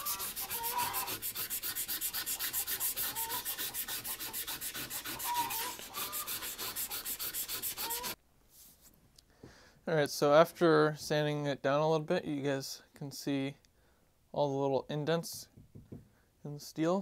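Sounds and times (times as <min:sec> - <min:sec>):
sandpaper rubbing on steel: 0:00.0 - 0:08.2.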